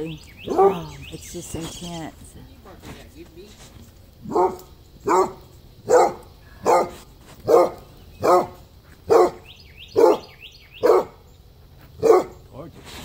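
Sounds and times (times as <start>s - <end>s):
dog barking: 0.5s - 0.8s, 4.2s - 9.4s, 10.0s - 11.2s, 12.0s - 12.4s.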